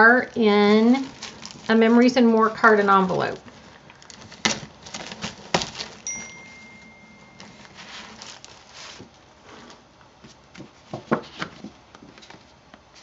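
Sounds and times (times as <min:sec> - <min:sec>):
cellophane crinkling: 0:00.0 - 0:09.2
thin steady high tone: 0:06.0 - 0:08.3.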